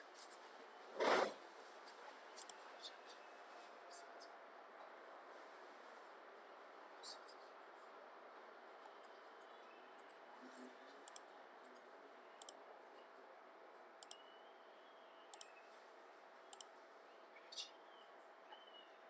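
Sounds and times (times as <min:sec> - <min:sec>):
computer mouse clicking: 0:02.4 - 0:02.6, 0:11.0 - 0:12.6, 0:14.0 - 0:14.2, 0:15.3 - 0:15.6, 0:16.5 - 0:16.7.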